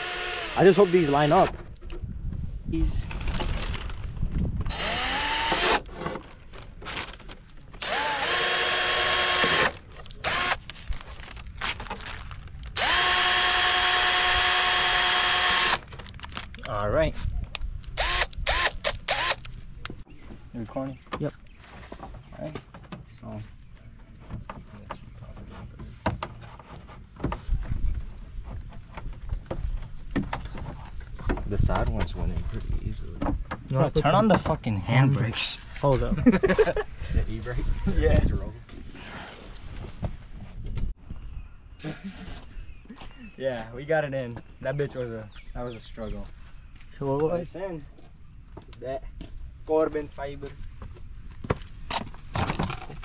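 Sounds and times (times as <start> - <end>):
cordless drill whining: 0.0 - 1.4, 4.7 - 5.9, 7.8 - 10.6, 12.8 - 15.9, 18.0 - 19.5.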